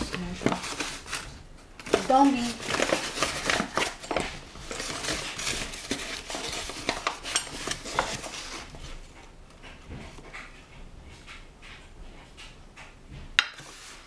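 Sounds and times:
utensils and dishes clinking: 1.9 - 12.6.

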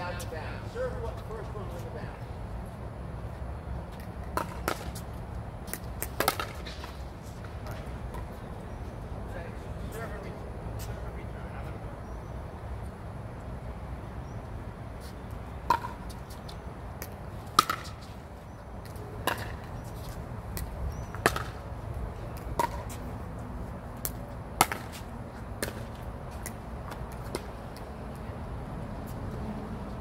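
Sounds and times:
paddles hitting plastic ball: 5.7 - 7.0, 17.0 - 18.1, 20.5 - 21.6, 24.0 - 25.0.

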